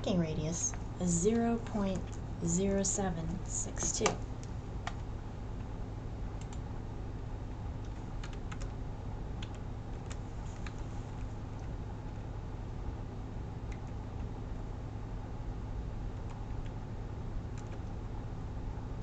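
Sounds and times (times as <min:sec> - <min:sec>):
steady low hum: 0:00.0 - 0:19.0
computer keyboard keystrokes: 0:06.4 - 0:06.6, 0:07.8 - 0:08.8, 0:09.4 - 0:11.7, 0:17.6 - 0:17.9.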